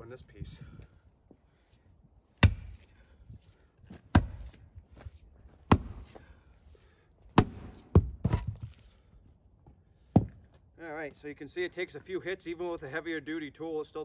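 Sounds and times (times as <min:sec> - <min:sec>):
splitting maul striking wood: 0:02.4 - 0:02.8, 0:04.1 - 0:04.5, 0:05.7 - 0:06.1, 0:07.4 - 0:08.7.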